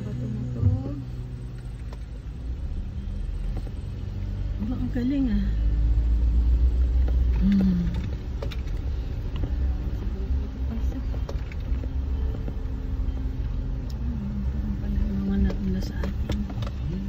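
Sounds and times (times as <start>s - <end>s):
car engine and road rumble: 0.0s - 17.0s.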